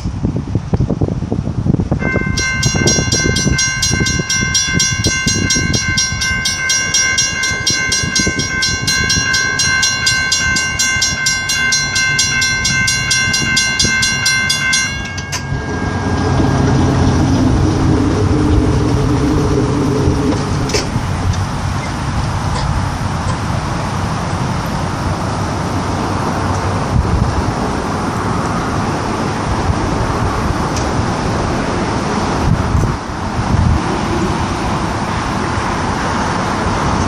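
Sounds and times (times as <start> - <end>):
wind rumbling on microphone: 0.0 - 37.0
crossing warning bell ringing: 2.0 - 22.1
pickup truck engine humming: 2.0 - 37.0.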